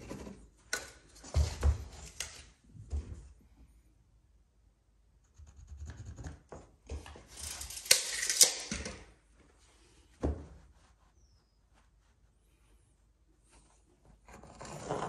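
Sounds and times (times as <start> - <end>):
carpet rubbing and scraping: 10.5 - 15.0.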